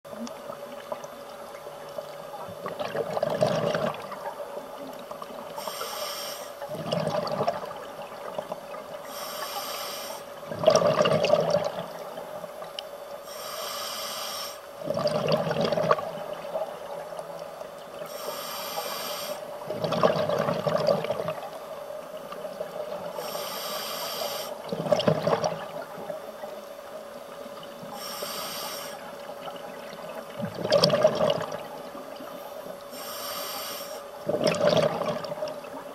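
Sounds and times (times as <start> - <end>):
steady hum: 0.1 - 35.9
exhaled bubbles bursting: 2.6 - 4.3, 6.7 - 8.5, 10.5 - 12.0, 14.8 - 16.6, 19.6 - 21.5, 24.6 - 25.8, 29.8 - 31.8, 34.2 - 35.9
regulator inhale hiss: 5.6 - 6.7, 9.0 - 10.4, 13.2 - 14.8, 18.0 - 19.6, 23.1 - 24.6, 27.9 - 29.3, 32.5 - 34.2.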